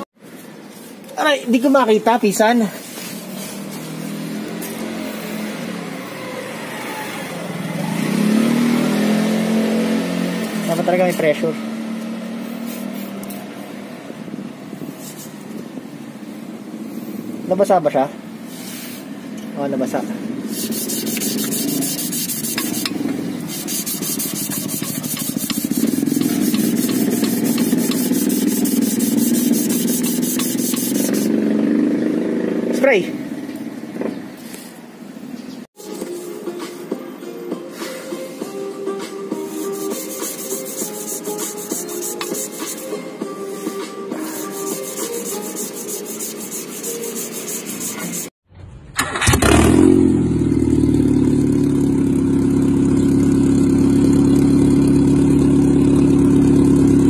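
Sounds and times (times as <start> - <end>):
sandpaper scraping metal: 12.5 - 13.2, 14.8 - 15.4, 20.5 - 31.4, 39.3 - 48.3
car engine running: 20.5 - 31.3, 50.2 - 57.0.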